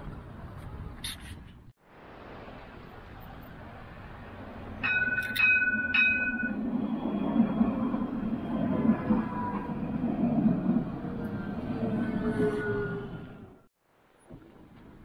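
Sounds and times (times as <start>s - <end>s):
tram rumbling: 2.1s - 13.7s
tram warning bell: 4.5s - 13.2s.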